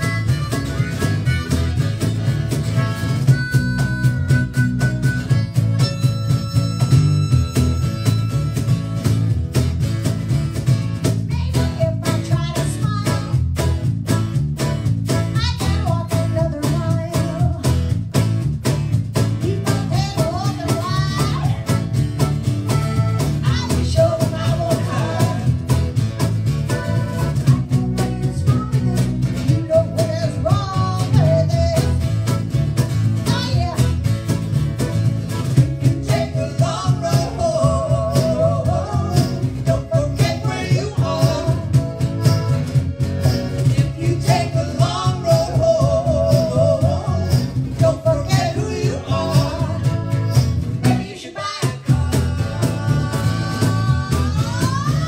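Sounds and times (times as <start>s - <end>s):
accordion: 0.0s - 55.0s
cajon beat: 0.0s - 55.0s
live band playing: 0.0s - 55.0s.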